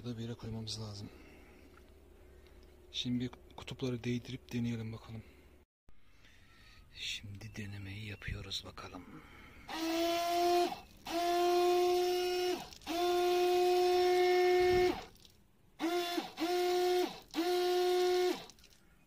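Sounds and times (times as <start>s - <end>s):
electric water pump whining: 9.7s - 15.2s, 15.8s - 18.7s.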